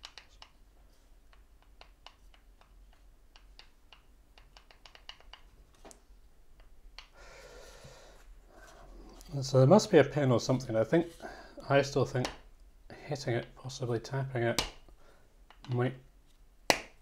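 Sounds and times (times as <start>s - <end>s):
hands tapping wooden puzzle box: 1.3s - 5.5s, 16.7s - 17.0s.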